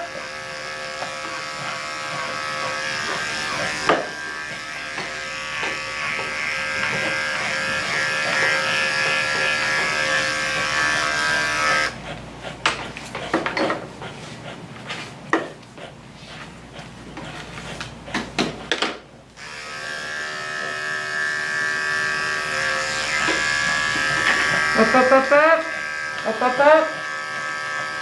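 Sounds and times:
electric clippers running: 0.0 - 12.0, 19.4 - 28.0.

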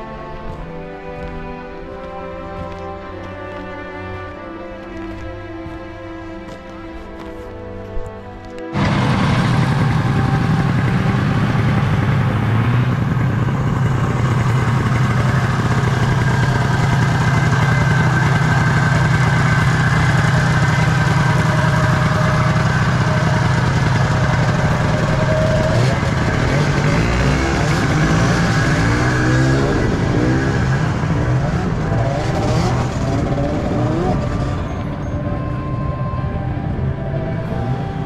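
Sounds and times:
snowmobile engine idling: 8.7 - 38.0
wavering rising and falling tone: 8.7 - 38.0.

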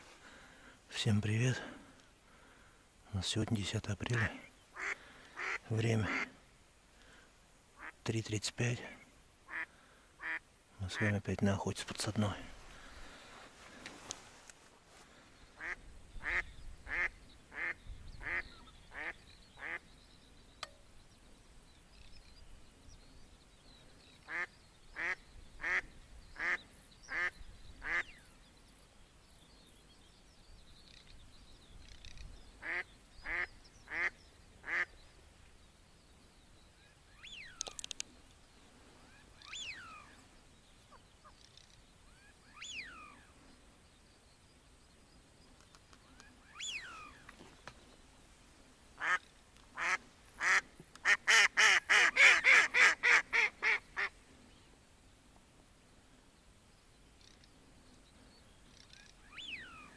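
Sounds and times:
short gliding bird calls: 4.2 - 6.5, 15.2 - 19.9, 31.8 - 35.2, 36.7 - 43.9, 46.0 - 47.6, 49.0 - 54.7, 57.2 - 59.9
duck quacking: 4.8 - 6.3, 9.5 - 10.4, 49.8 - 54.1.

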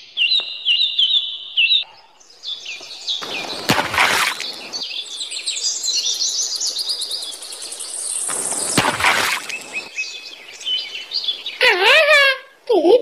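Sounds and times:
small birds chirping and trilling: 0.0 - 12.2
short rushing noise: 3.2 - 4.8, 8.3 - 9.9.

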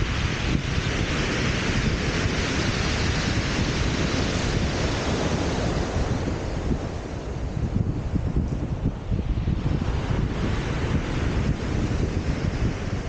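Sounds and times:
surf washing on shingle: 0.0 - 7.4
wind buffeting microphone: 0.0 - 13.0.

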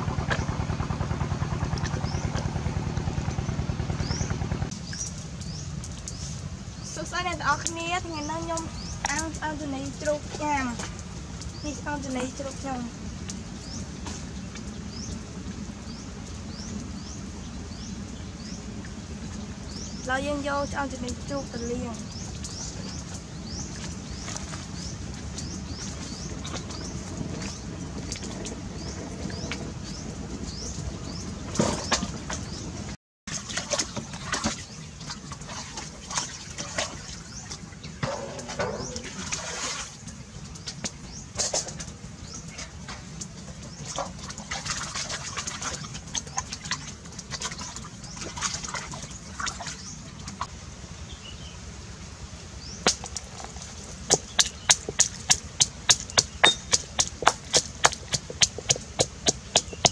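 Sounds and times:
water splashing in steel basin: 33.3 - 50.5, 52.8 - 59.9
mortar and pestle pounding: 54.1 - 59.9.

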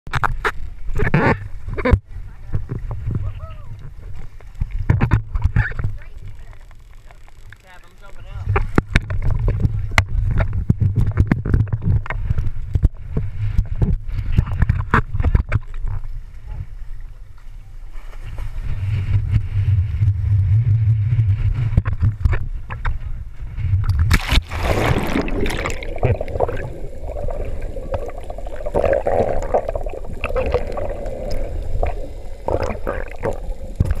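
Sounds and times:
muffled underwater rushing and bubbling: 0.1 - 34.0
low rumble: 18.8 - 34.0
water slapping and sloshing: 23.9 - 34.0
loud splash: 24.1 - 34.0.

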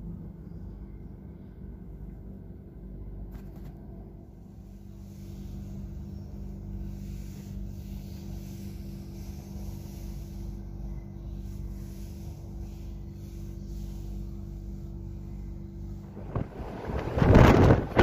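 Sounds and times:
low hum: 0.0 - 18.0
wind rumbling on microphone: 16.0 - 18.0.

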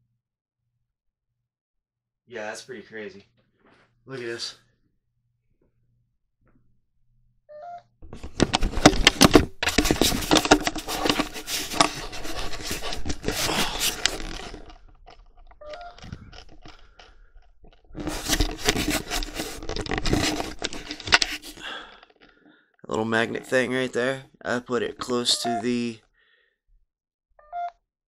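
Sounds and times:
camera handling noise: 8.2 - 17.1, 18.0 - 21.6.

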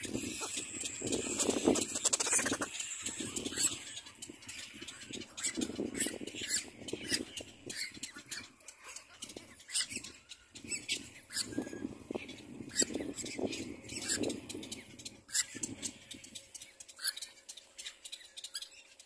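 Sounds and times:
low rough chatter: 0.0 - 14.3
chicks squawking: 0.0 - 16.1.

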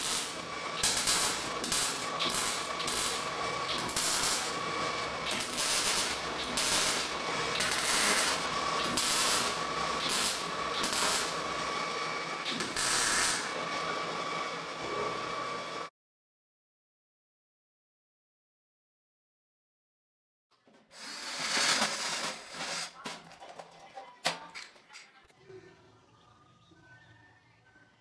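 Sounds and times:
crackling welding arc bursts: 0.0 - 11.7, 12.4 - 13.6, 20.9 - 23.0.

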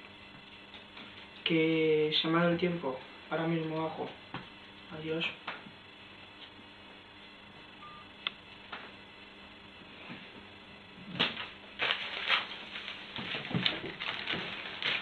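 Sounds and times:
cellophane crinkling: 11.2 - 15.0.

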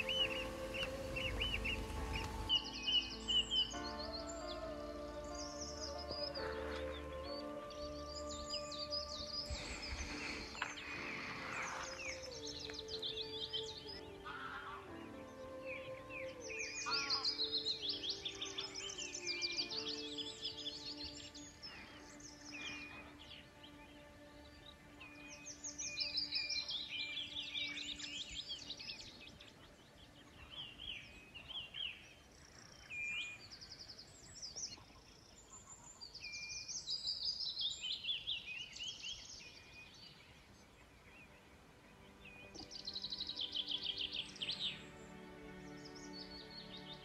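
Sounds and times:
songbird trilling: 0.0 - 4.6, 8.2 - 23.8
bird chirps: 0.0 - 47.0
faint soft music: 0.0 - 47.0.

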